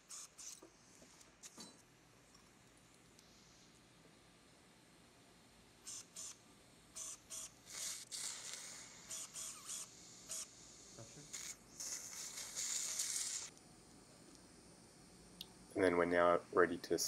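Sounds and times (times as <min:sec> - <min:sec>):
suction tip hissing: 0:07.0 - 0:13.6.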